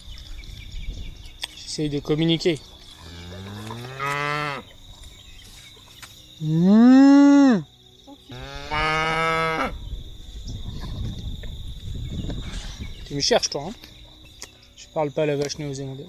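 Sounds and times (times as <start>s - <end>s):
calf mooing: 3.0s - 4.6s, 8.3s - 9.7s
man imitating moos: 6.4s - 7.7s.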